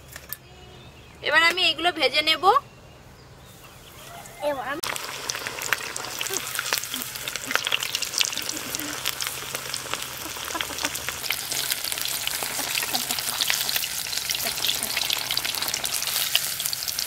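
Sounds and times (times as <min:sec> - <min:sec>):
chicken sizzling in oil: 0:04.8 - 0:17.0.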